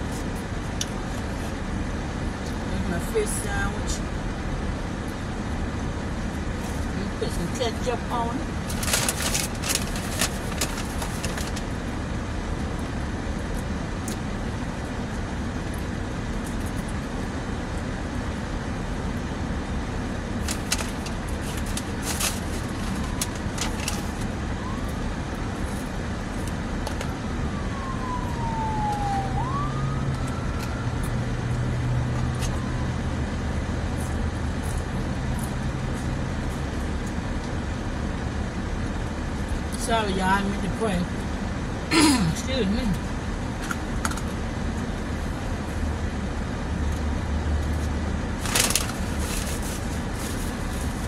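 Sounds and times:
road traffic noise: 0.0s - 51.0s
siren wailing: 22.9s - 26.1s, 26.9s - 33.6s.

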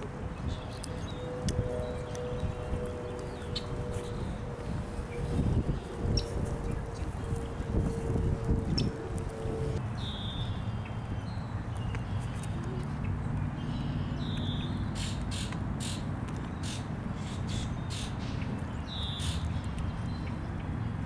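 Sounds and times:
steady low rumble: 0.0s - 11.8s
birds calling: 0.0s - 21.0s.

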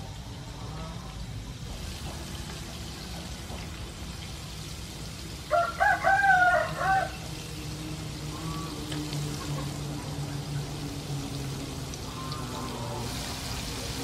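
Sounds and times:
squid sizzling in oil: 1.4s - 14.0s
rooster crowing: 5.5s - 7.4s.

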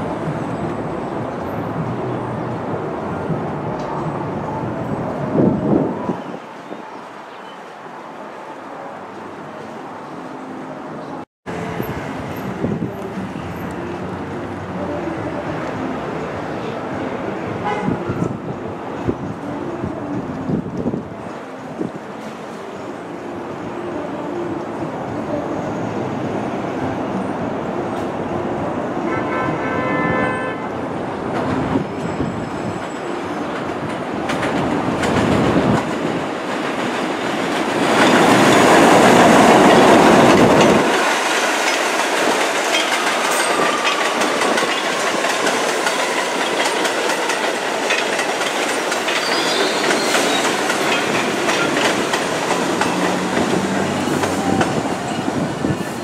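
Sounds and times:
subway train rumble: 0.0s - 56.0s
train horn blast: 17.6s - 18.4s, 29.0s - 30.8s.

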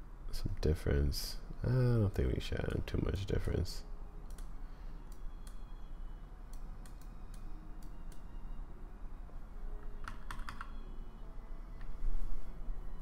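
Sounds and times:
keyboard and mouse clicks: 4.2s - 4.5s, 6.5s - 8.3s, 10.0s - 10.8s.

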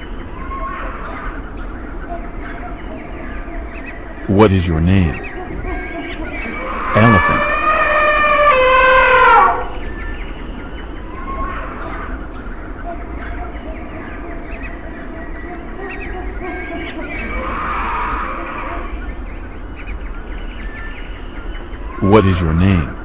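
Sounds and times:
elephant trumpeting: 6.5s - 9.9s.

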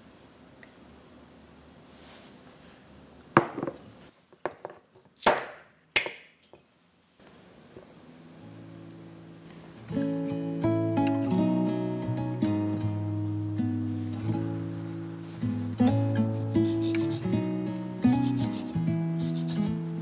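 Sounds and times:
knock: 3.4s - 3.8s
bottle cap clicking and cracking: 5.2s - 6.7s
acoustic guitar music: 8.0s - 20.0s.

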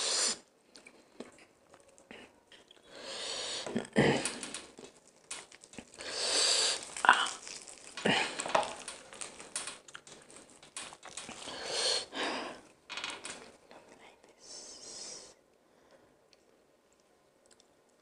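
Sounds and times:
fried chicken skin crackling: 4.2s - 11.8s
meat ripping: 4.2s - 11.8s.

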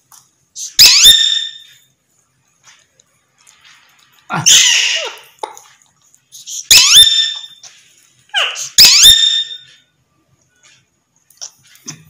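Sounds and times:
parakeets harsh calls: 0.6s - 1.5s, 4.3s - 5.4s, 6.7s - 7.6s, 8.3s - 9.6s.

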